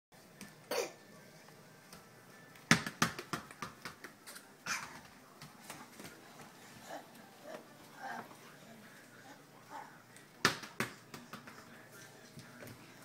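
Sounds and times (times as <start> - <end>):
small ball bouncing on hard floor: 2.7 - 4.2, 10.4 - 11.7.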